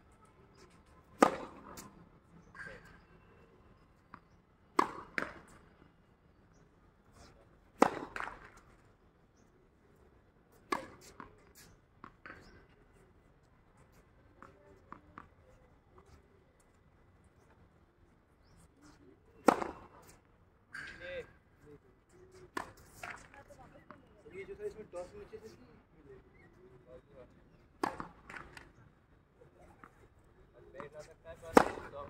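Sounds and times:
tennis ball bounces: 1.1s - 1.9s, 4.0s - 5.7s, 7.8s - 8.8s, 10.6s - 12.5s, 18.8s - 20.2s, 22.4s - 23.9s, 27.8s - 28.7s, 30.8s - 32.0s
tennis racket striking ball: 31.5s - 31.9s.

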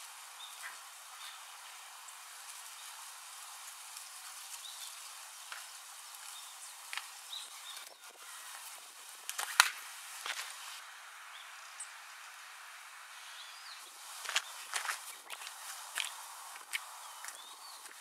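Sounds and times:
steady outdoor hiss: 0.0s - 18.0s
footsteps on stone paving: 5.5s - 7.2s, 9.4s - 10.7s, 14.0s - 18.0s.

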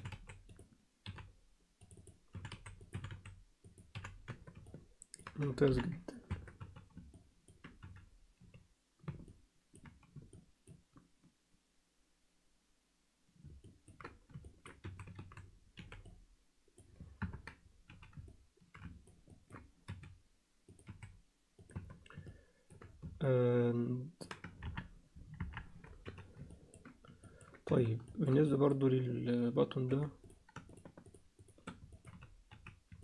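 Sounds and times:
keyboard and mouse clicks: 0.0s - 11.3s, 13.4s - 23.3s, 24.1s - 28.9s, 29.7s - 33.0s.

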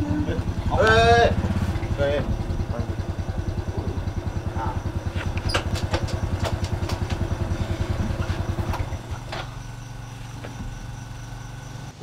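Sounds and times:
motorcycle engine idling: 0.0s - 12.0s
sharp clicks and knocks: 5.1s - 7.4s.

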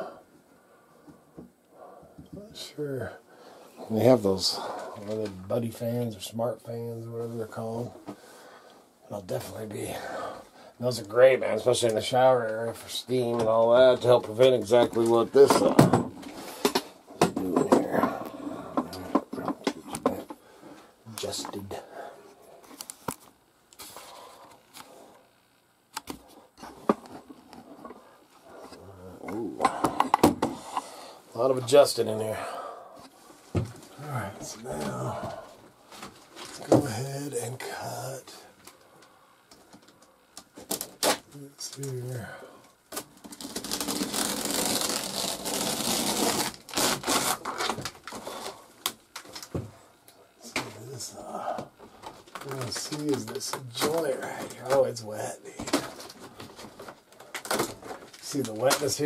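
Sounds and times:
phone handling rustle: 51.6s - 54.9s.

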